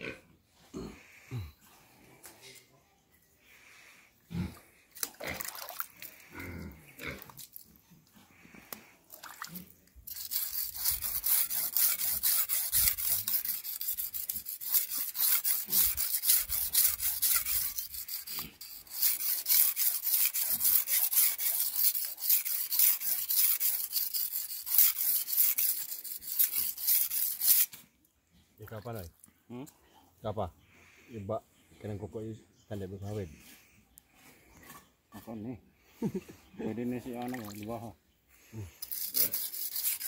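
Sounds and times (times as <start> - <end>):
knife scraping on whetstone: 10.1 - 27.8, 38.8 - 40.0.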